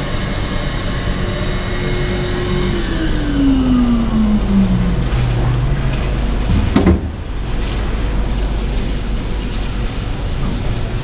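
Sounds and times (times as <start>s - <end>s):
sharp knock: 6.5s - 7.2s.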